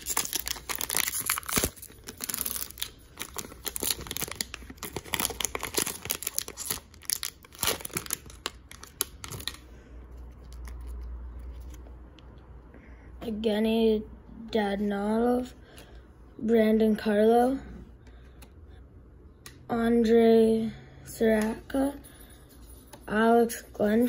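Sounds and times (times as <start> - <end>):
foil wrapper crinkling and tearing: 0.0 - 9.7.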